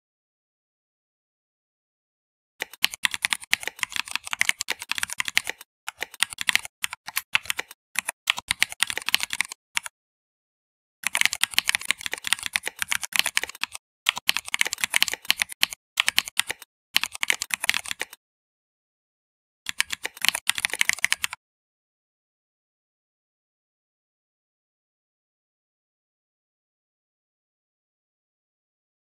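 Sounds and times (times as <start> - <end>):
fast typing on keyboard: 2.6 - 9.9, 11.0 - 18.2, 19.7 - 21.4.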